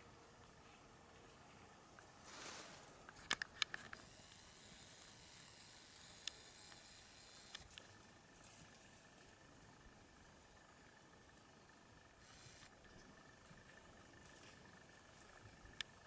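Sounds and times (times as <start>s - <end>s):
vegetation rustling: 1.4s - 3.2s.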